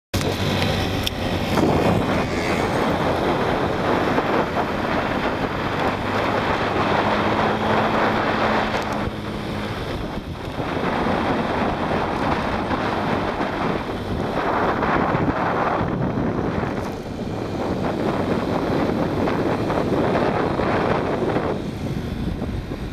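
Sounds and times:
scooter engines humming: 0.2 - 22.9
wind rushing over microphone: 0.2 - 22.9.

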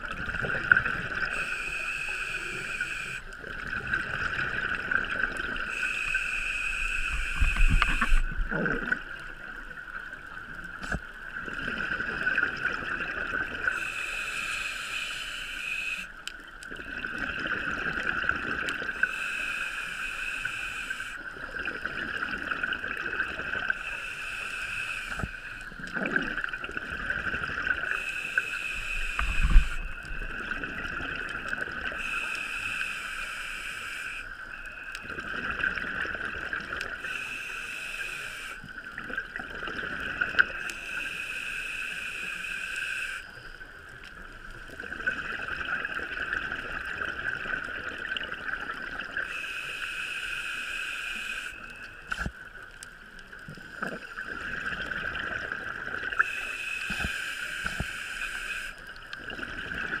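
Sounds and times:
exhaled bubbles gurgling: 0.0 - 14.0, 16.6 - 19.2, 20.9 - 24.1, 25.0 - 32.4, 34.5 - 37.4, 38.3 - 41.2, 43.4 - 49.4, 53.3 - 60.0
regulator inhale hiss: 0.8 - 3.3, 5.3 - 8.3, 13.6 - 16.2, 18.9 - 21.4, 23.6 - 25.8, 27.8 - 30.1, 31.9 - 35.0, 36.9 - 38.9, 40.4 - 44.0, 49.2 - 52.3, 56.2 - 59.0.

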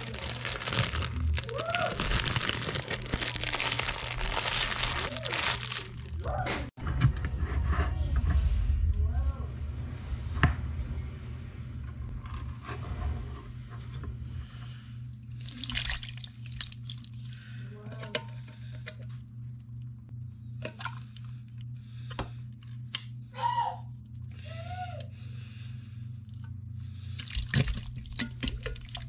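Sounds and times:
low hum: 0.0 - 29.0
liquid pouring with wet plops: 15.4 - 17.4.

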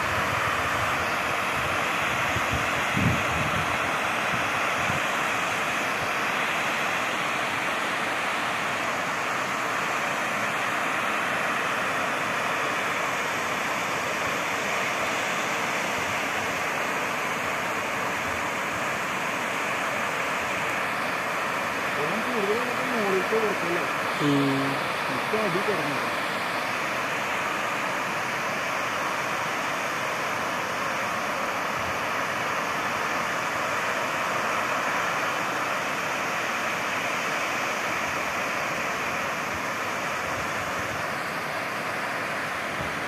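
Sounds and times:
water rushing and splashing: 0.0 - 43.0.

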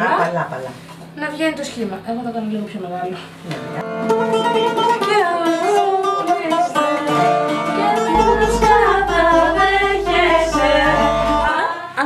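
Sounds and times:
bouzouki plucked: 8.1 - 11.5
low steady bass note: 8.1 - 11.5
person singing: 8.2 - 11.5.

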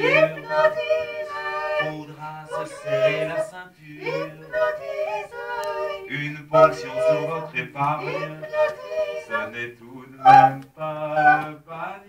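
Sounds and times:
people singing in harmony: 0.0 - 12.0.

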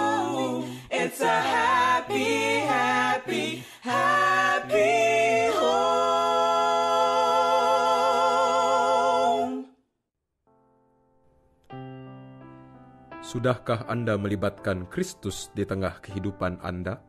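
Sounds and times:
soft sustained music: 10.6 - 17.0.

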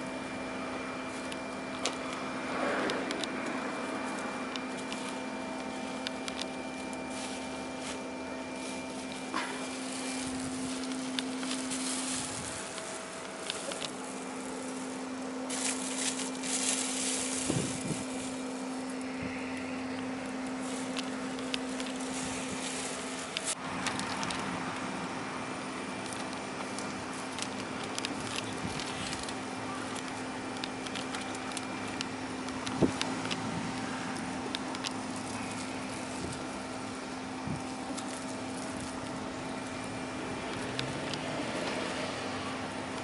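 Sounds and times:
crackling and rustling: 0.0 - 43.0
mid-pitched hum: 0.0 - 43.0.

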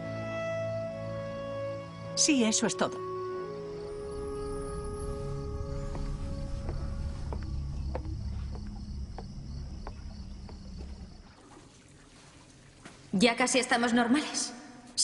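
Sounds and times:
crickets chirring: 2.6 - 12.8.

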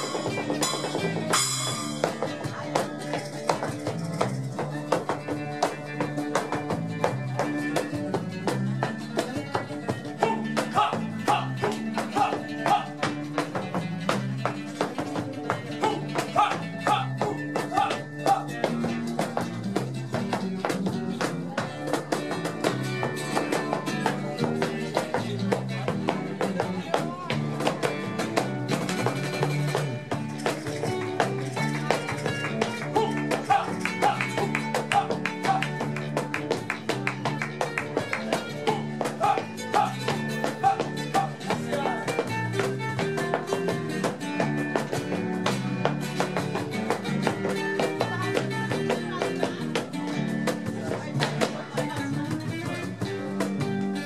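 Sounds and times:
acoustic guitar: 0.0 - 54.0
cajon drumming: 0.0 - 54.0
rhythmic hand claps: 0.0 - 54.0.

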